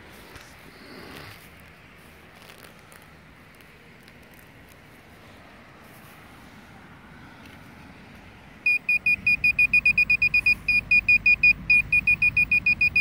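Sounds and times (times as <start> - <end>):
metal detector pinpointer beeping: 8.7 - 13.0.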